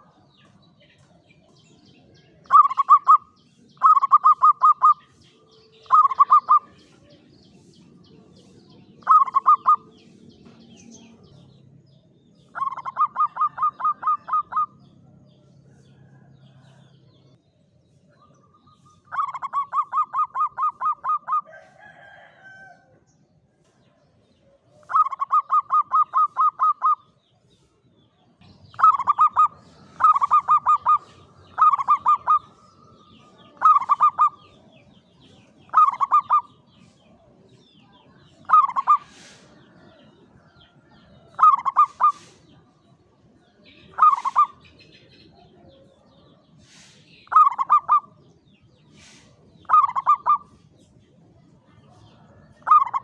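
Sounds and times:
dove cooing: 0:02.4 - 0:05.0, 0:05.8 - 0:06.8, 0:09.0 - 0:10.0, 0:12.5 - 0:14.8, 0:19.0 - 0:21.5, 0:24.8 - 0:27.1, 0:28.7 - 0:34.8, 0:35.6 - 0:36.6, 0:38.4 - 0:40.0, 0:41.3 - 0:42.4, 0:43.9 - 0:44.6, 0:46.8 - 0:48.2, 0:49.0 - 0:50.5, 0:52.2 - 0:53.0.

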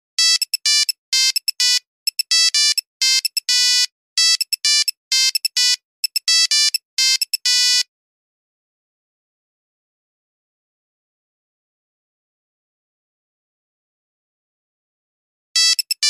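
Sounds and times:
phone ringtone beeping melody: 0:00.2 - 0:07.8, 0:15.6 - 0:16.0.

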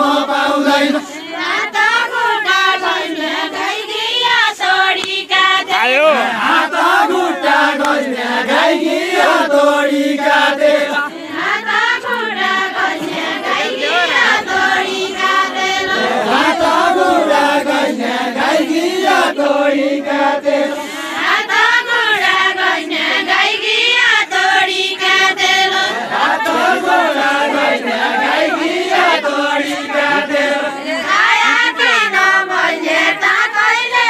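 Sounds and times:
group singing folk song: 0:00.0 - 0:34.0.

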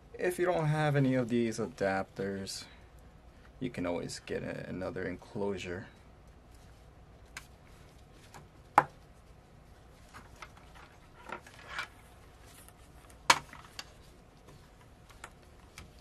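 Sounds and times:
soft clicks and rustling: 0:06.0 - 0:16.0.

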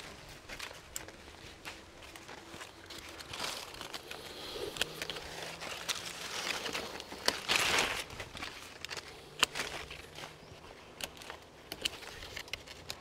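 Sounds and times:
leaves and twigs rustling: 0:00.0 - 0:13.0
pruning shears snipping: 0:03.7 - 0:13.0.

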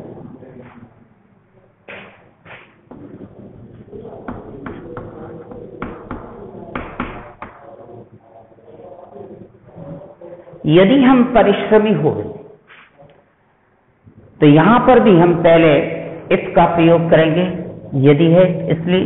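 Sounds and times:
chalk tapping and scraping on blackboard: 0:04.3 - 0:07.6.

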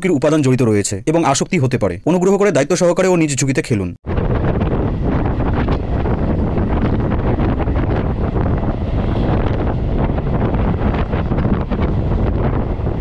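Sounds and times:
wind buffeting microphone: 0:04.0 - 0:13.0
train rumbling at speed: 0:04.1 - 0:13.0.

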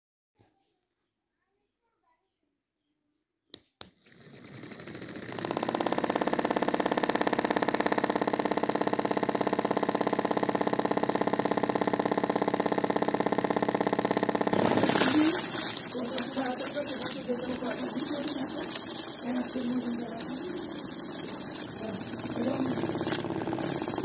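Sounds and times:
small electric motor buzzing: 0:05.2 - 0:24.0.

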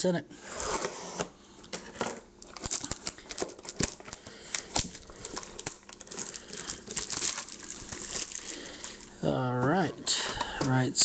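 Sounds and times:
plastic snapping: 0:02.4 - 0:08.4
shrink wrap crinkling: 0:02.4 - 0:11.0.

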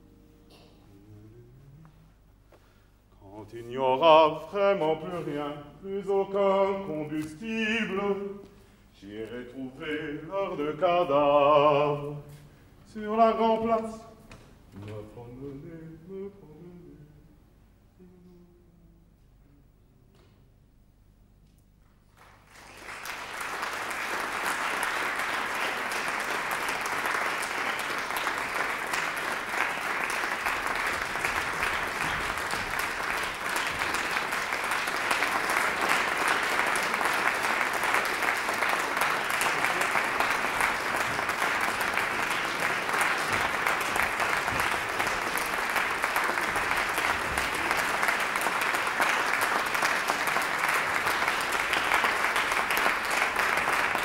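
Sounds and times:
audience applauding: 0:22.0 - 0:54.0.

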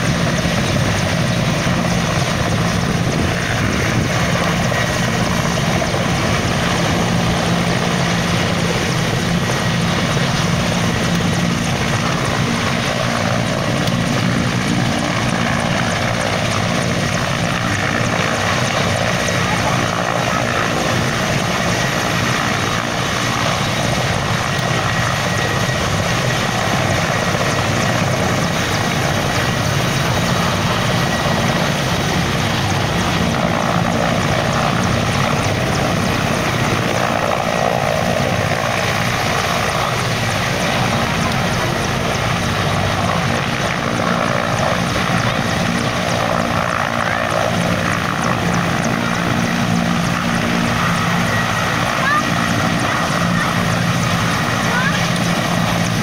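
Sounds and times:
helicopter hovering: 0:00.0 - 0:56.0.

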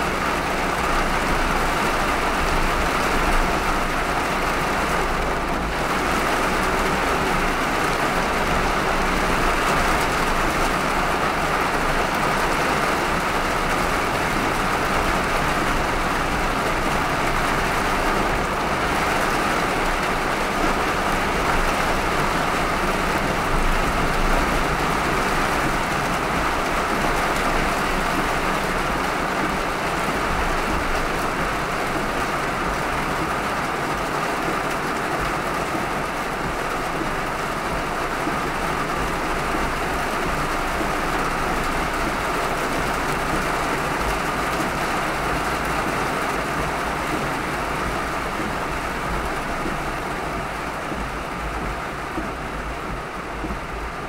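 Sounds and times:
car tyres on wet road: 0:00.0 - 0:54.0
heavy rain: 0:00.0 - 0:54.0.

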